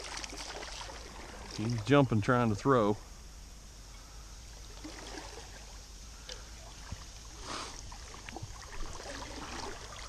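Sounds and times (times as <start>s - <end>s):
fish splashing in water: 0.0s - 1.7s, 4.7s - 5.6s, 6.2s - 10.0s
flowing creek: 0.0s - 3.2s, 3.9s - 10.0s.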